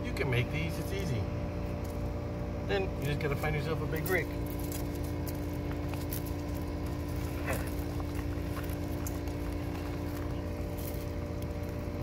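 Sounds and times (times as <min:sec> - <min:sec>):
steady mechanical hum: 0:00.0 - 0:12.0
tortoises eating: 0:00.0 - 0:12.0
shuffling on gravel: 0:03.0 - 0:12.0.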